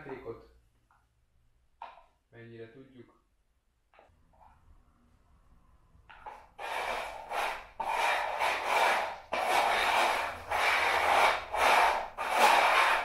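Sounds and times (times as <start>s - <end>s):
containers scraping on tile floor: 6.1s - 13.0s.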